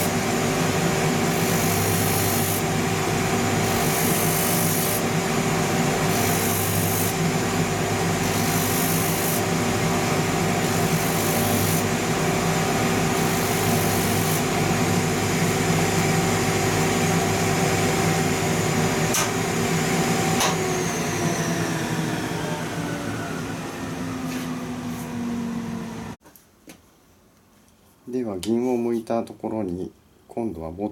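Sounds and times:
sanding machine motor running: 0:00.0 - 0:26.2
hiss of sanding leather: 0:01.2 - 0:02.7, 0:03.6 - 0:05.1, 0:06.0 - 0:07.2, 0:08.1 - 0:09.5, 0:10.6 - 0:12.0, 0:13.1 - 0:14.5.

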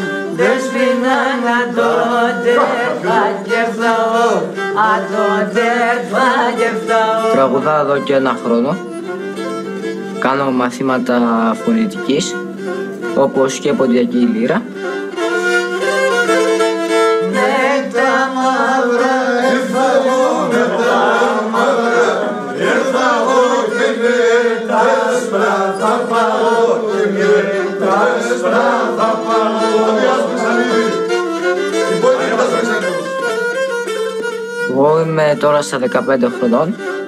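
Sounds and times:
person singing: 0:00.0 - 0:08.7, 0:17.2 - 0:21.7, 0:22.6 - 0:33.4
bowed lyra playing: 0:00.0 - 0:20.3, 0:27.5 - 0:37.0.

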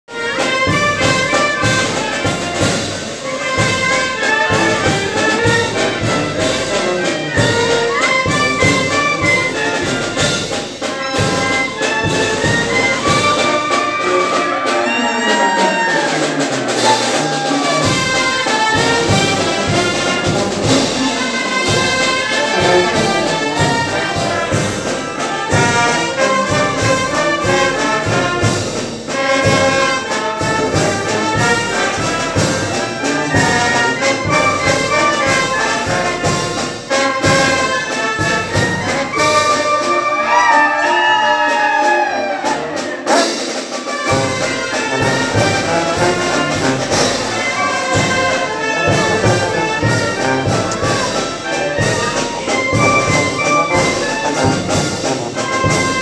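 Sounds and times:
brass band playing dance tune: 0:00.0 - 0:56.0.

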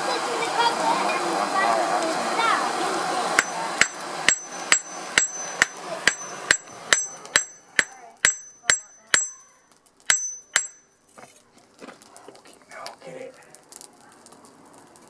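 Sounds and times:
hammer striking steel on anvil: 0:03.4 - 0:11.0.

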